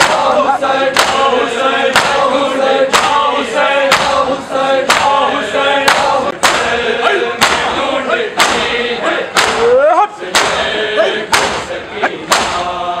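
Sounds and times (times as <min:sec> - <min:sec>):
men slapping chests in unison: 0:00.0 - 0:12.9
male voices chanting a lament: 0:00.0 - 0:13.0.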